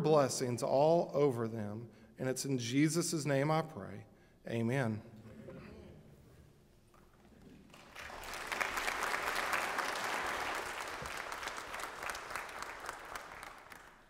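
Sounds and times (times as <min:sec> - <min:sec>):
crowd applauding: 0:07.6 - 0:14.0.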